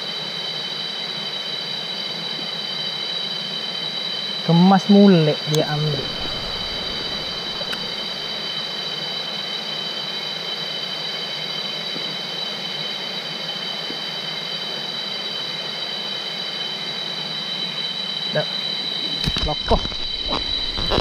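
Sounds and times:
high-pitched insect drone: 0.0 - 21.0
rocky stream rushing: 5.5 - 8.5.

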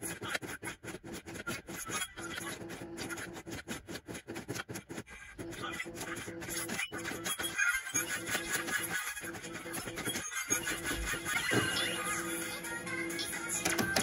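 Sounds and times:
slot machine sound effects: 5.6 - 14.0.

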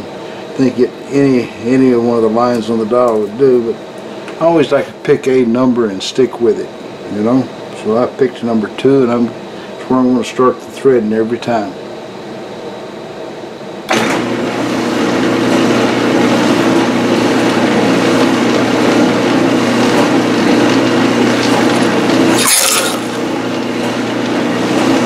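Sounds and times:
lathe motor humming: 14.0 - 25.0.

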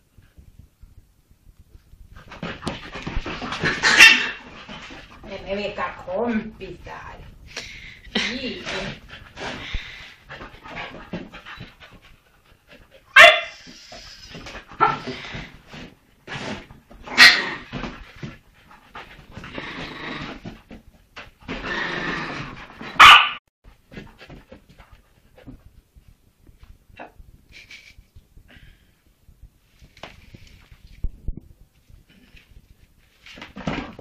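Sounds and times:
dog barking loudly: 3.7 - 4.5, 13.2 - 13.6, 14.8 - 15.1, 23.0 - 23.4.

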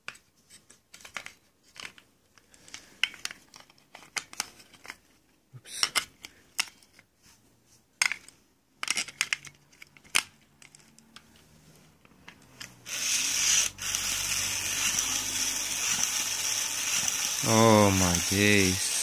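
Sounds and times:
toy motor whirring: 12.8 - 19.0.

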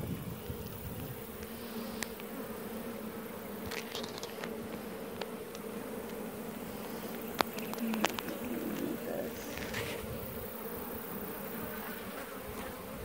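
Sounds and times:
bees buzzing: 0.0 - 13.0.

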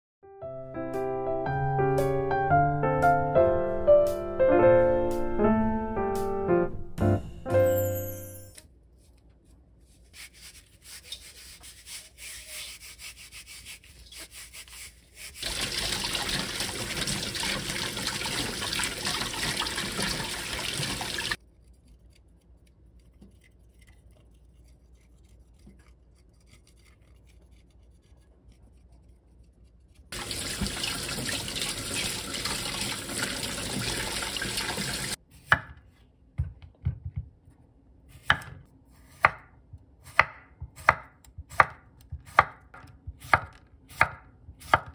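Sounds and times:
cucumber rubbed with coarse salt: 8.9 - 16.5, 21.3 - 30.7
tap water running: 15.4 - 21.4, 30.1 - 35.2
knife chopping on wooden board: 35.4 - 35.8, 38.2 - 44.9.

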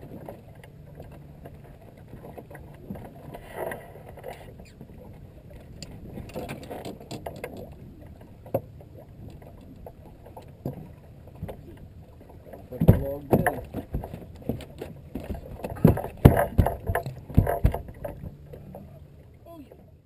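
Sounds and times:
knocks and scuffs on boat deck: 12.8 - 18.4.

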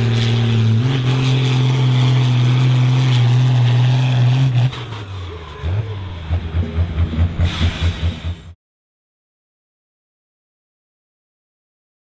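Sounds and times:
tractor engine under heavy load: 0.0 - 8.6.

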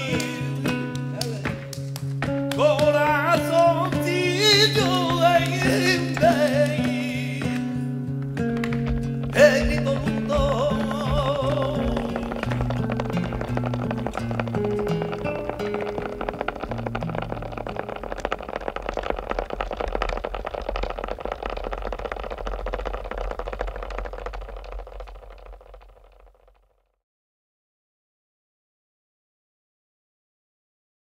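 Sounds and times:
person singing: 0.0 - 1.7, 2.5 - 7.9, 9.3 - 13.2
hand claps: 0.0 - 25.8
guitar plucking: 0.0 - 25.9
flamenco shoe strikes on stage floor: 0.0 - 26.0.

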